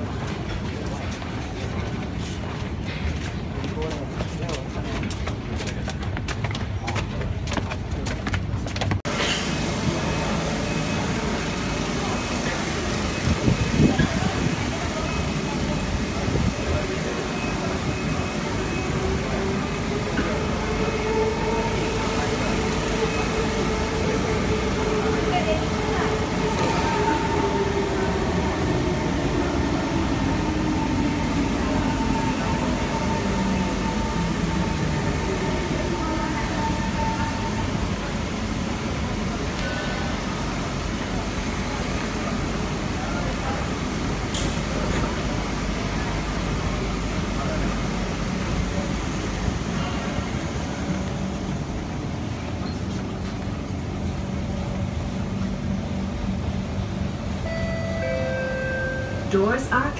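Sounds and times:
train pulling into platform: 0.0 - 59.9
steady high tone: 57.3 - 59.9.

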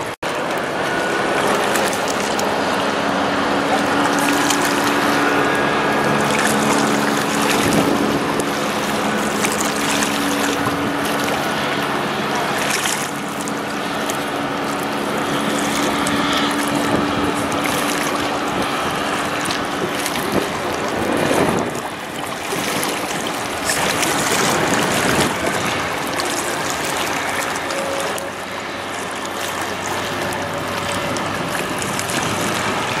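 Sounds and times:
ship engine humming: 0.0 - 33.0
water rushing: 0.0 - 33.0
wind noise: 2.2 - 12.8, 13.6 - 28.9.

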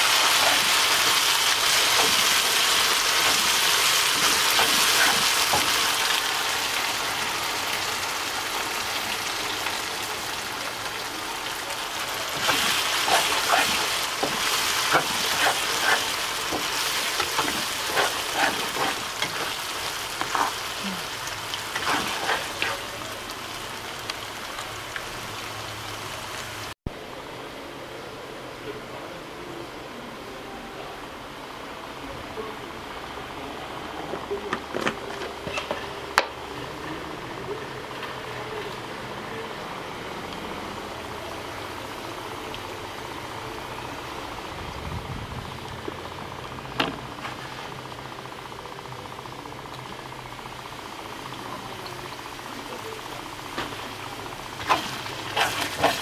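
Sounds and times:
spatula scraping a wok: 0.0 - 6.0, 12.3 - 22.9, 54.6 - 56.0
paste sizzling in hot oil: 0.0 - 26.7, 51.7 - 56.0.

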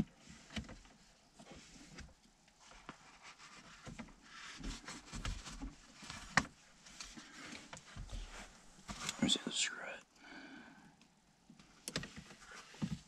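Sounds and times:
hands rustling on gear lever boot: 1.4 - 9.3.

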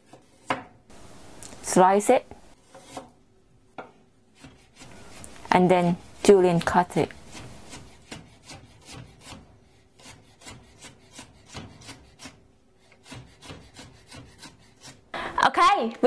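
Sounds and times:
knife chopping on wooden board: 0.1 - 0.8, 7.2 - 9.4.

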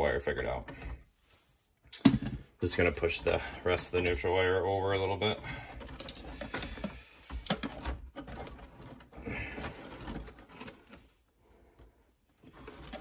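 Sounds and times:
wires rustling and clicking: 1.9 - 11.2.

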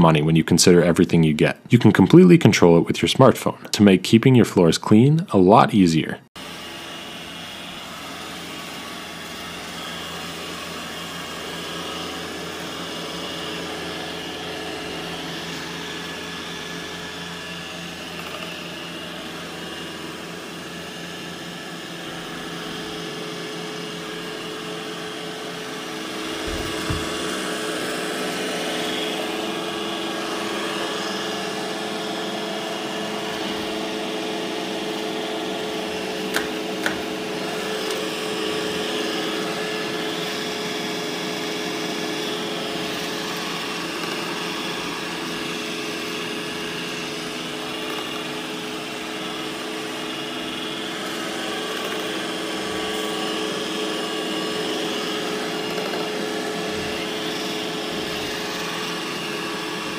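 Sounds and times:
robot vacuum motor whine: 6.4 - 59.9
low thump: 26.4 - 27.2.

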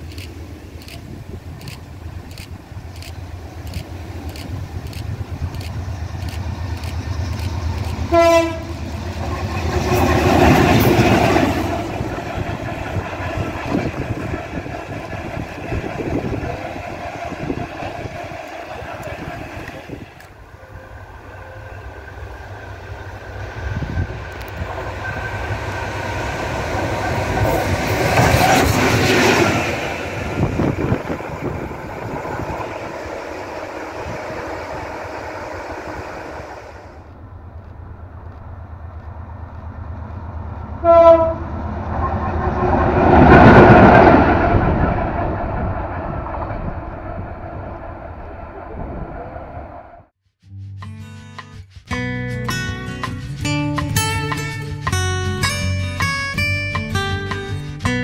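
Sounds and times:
diesel locomotive passing: 0.0 - 50.1
locomotive horn blast: 8.1 - 8.9, 20.5 - 22.4, 40.8 - 42.3.

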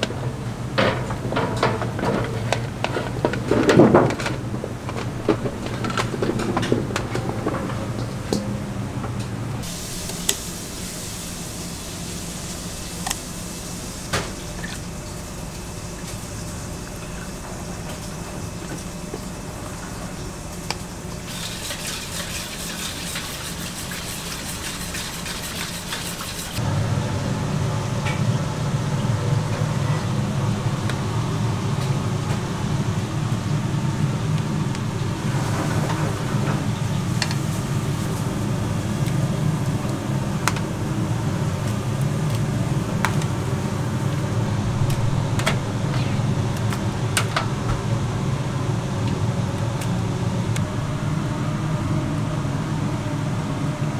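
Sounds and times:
ventilation hum: 0.0 - 53.9
steady hiss with clicks: 9.0 - 21.4
whisk beating in steel bowl: 21.3 - 26.6.

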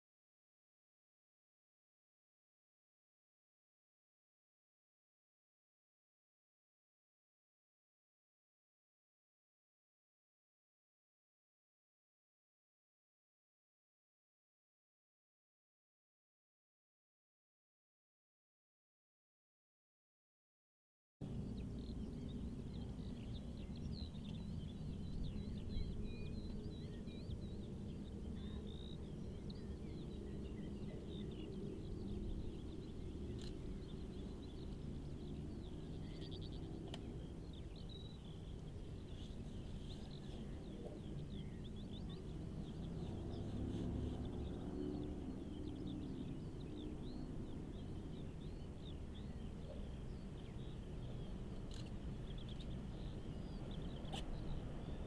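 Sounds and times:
birds singing: 21.2 - 55.0.

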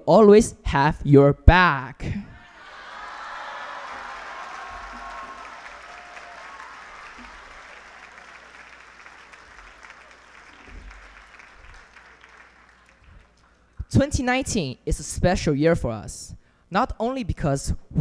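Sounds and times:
audience applauding: 2.4 - 13.9.

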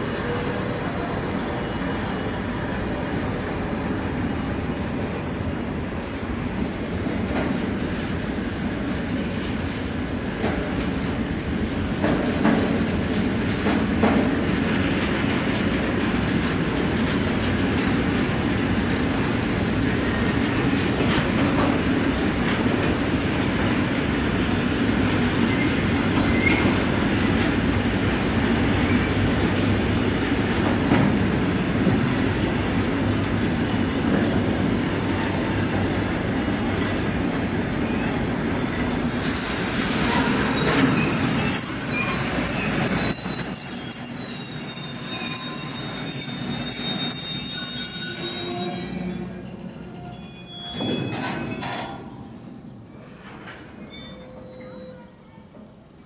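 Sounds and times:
freight train wheels rumbling: 0.0 - 55.9
metallic wheel squeal: 39.1 - 52.0, 53.8 - 55.1.

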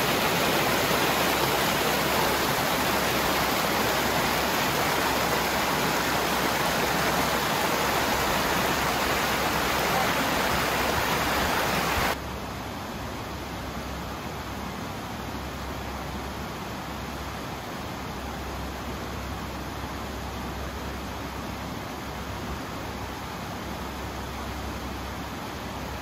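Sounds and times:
creek rushing over rocks: 0.0 - 12.2.

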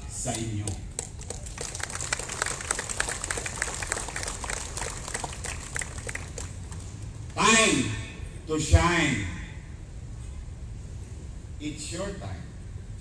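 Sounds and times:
crowd applauding: 1.0 - 7.0.

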